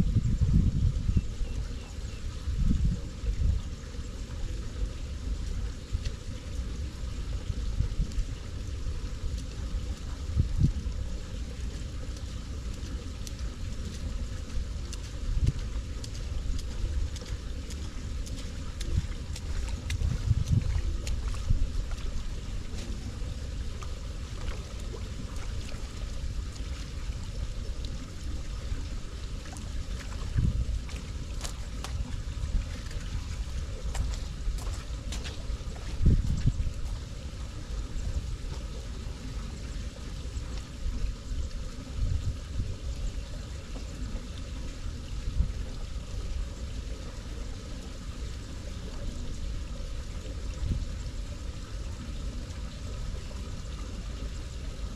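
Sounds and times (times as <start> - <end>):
wind buffeting microphone: 0.0 - 38.8, 41.0 - 44.1.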